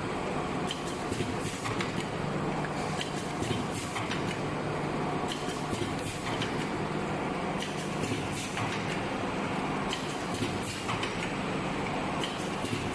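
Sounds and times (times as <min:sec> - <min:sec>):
machine clicks and knocks: 0:00.7 - 0:02.1, 0:03.0 - 0:04.4, 0:05.3 - 0:06.7, 0:07.6 - 0:09.0, 0:09.9 - 0:11.4, 0:12.2 - 0:12.9.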